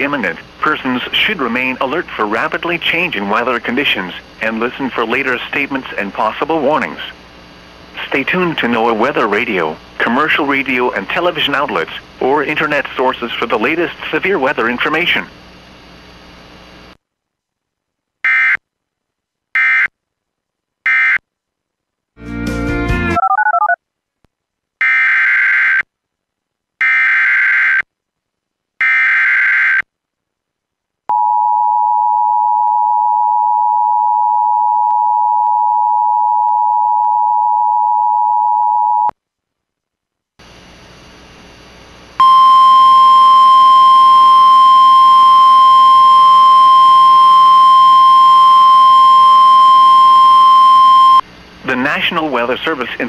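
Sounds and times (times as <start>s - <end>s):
hissy radio feed: 0.0s - 7.2s, 7.9s - 15.3s.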